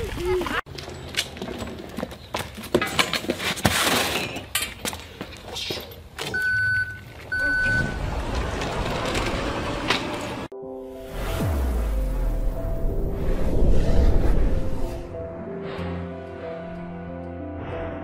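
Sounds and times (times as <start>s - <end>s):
steady rushing noise: 11.2s - 15.3s.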